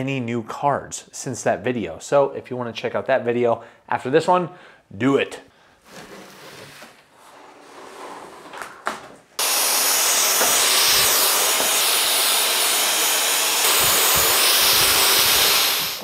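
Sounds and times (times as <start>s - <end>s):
stick vacuum hissing and whining: 9.4s - 16.0s.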